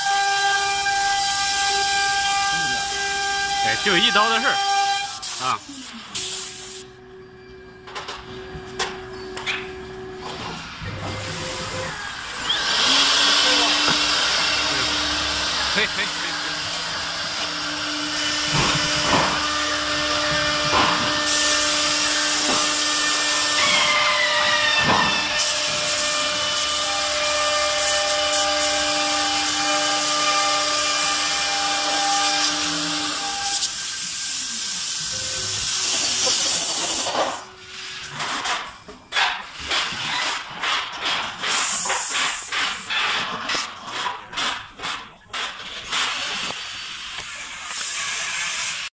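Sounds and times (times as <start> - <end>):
cnc router spindle whine: 0.0 - 5.6, 6.8 - 33.7.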